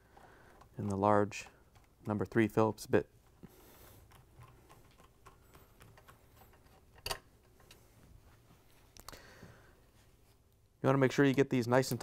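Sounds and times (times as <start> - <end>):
screwdriver clicking and scraping: 0.0 - 2.4, 4.0 - 7.8.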